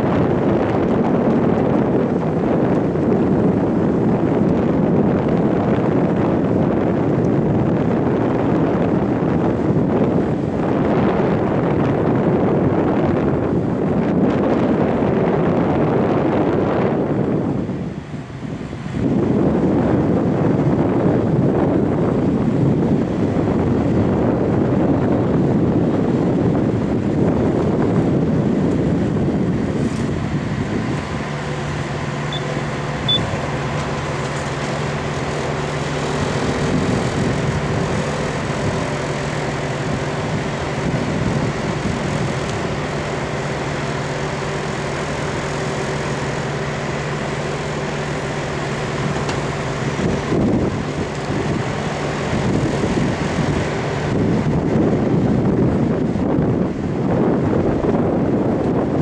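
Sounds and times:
diesel engine running: 0.0 - 59.0
short high beeps: 32.3 - 33.4.

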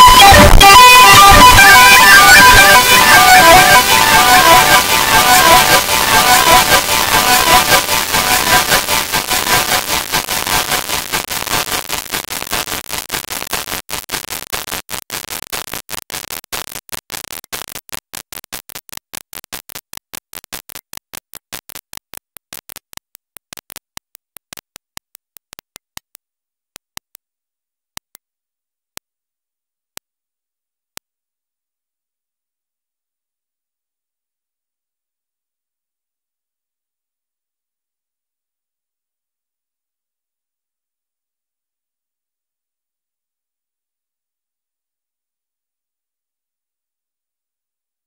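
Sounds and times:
harsh static hiss: 0.0 - 22.9
rapid digital clicks: 0.0 - 26.2.

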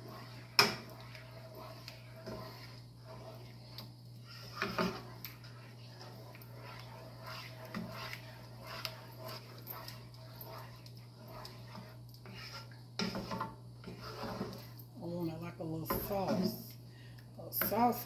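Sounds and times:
spoon scraping pan: 0.0 - 14.9, 15.8 - 16.7.

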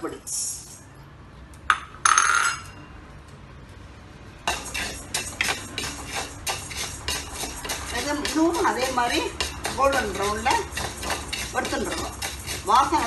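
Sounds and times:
spatula scraping metal pan: 4.5 - 13.0.

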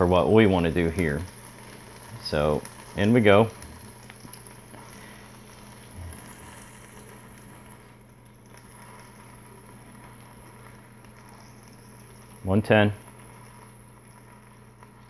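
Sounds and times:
low steady hum: 0.0 - 15.0
steak sizzling: 0.0 - 15.0.

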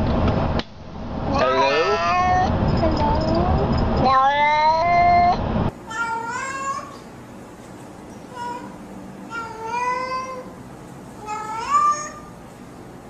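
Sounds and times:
cats meowing: 1.3 - 3.4, 4.0 - 7.0, 11.2 - 12.3.

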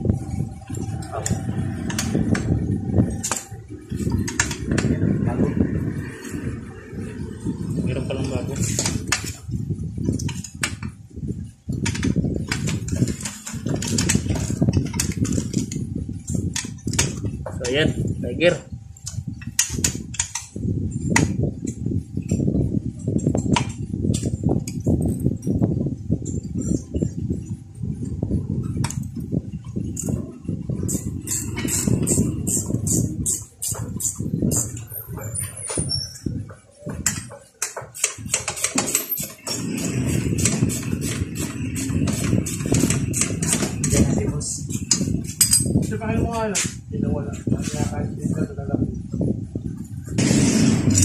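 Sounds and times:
low background rumble: 0.0 - 36.4
metal tools clicking and tapping: 0.4 - 5.0, 11.8 - 17.9, 19.0 - 22.4, 28.6 - 46.0.

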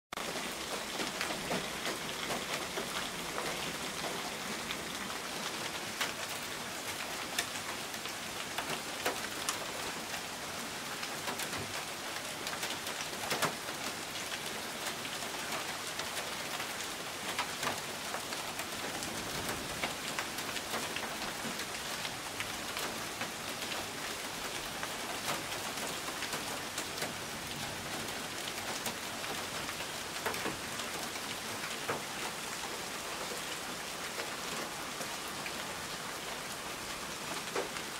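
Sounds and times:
heavy rain and hail: 0.1 - 37.9
hailstones clicking on pavement: 11.1 - 16.3.

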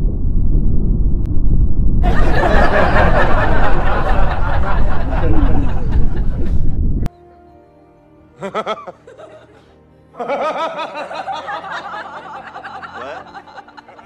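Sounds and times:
people laughing: 2.0 - 6.5, 8.4 - 14.0
background music: 7.0 - 14.0.

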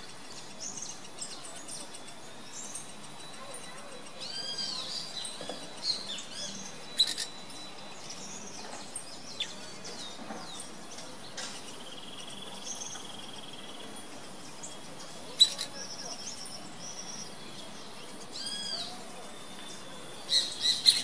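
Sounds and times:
rapid bird trill: 0.0 - 8.3
birds chirping and calling: 0.0 - 21.0.

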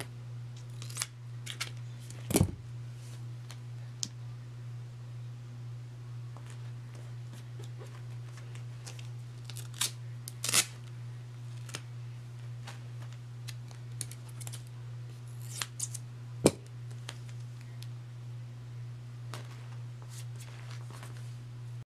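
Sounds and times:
scissors snipping tape: 13.4 - 14.7, 15.4 - 16.0.

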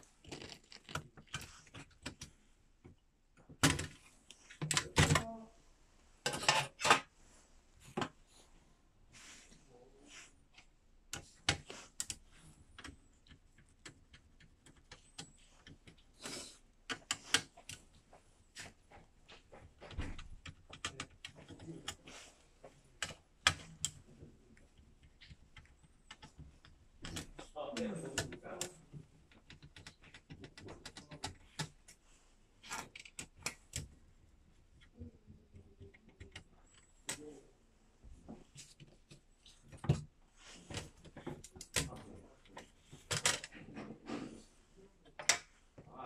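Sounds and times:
screwdriver and plastic parts clicking: 0.2 - 5.3, 32.6 - 34.0, 40.7 - 43.6.

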